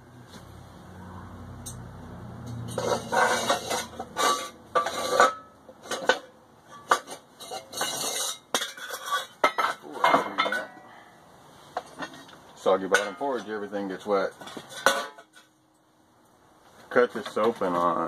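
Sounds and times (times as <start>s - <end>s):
metal clanking on workbench: 2.6s - 10.8s, 14.4s - 15.5s.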